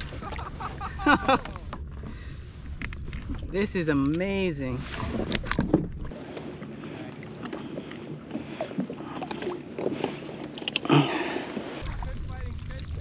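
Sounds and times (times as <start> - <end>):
water splashing: 0.0 - 2.4, 3.0 - 13.0
clicks and knocks on kayak: 4.9 - 6.1.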